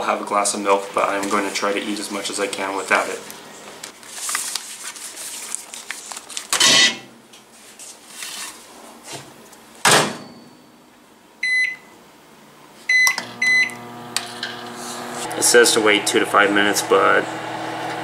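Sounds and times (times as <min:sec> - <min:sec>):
keypad beeps: 0:11.4 - 0:11.9, 0:12.9 - 0:13.8
microwave oven humming: 0:12.9 - 0:18.0.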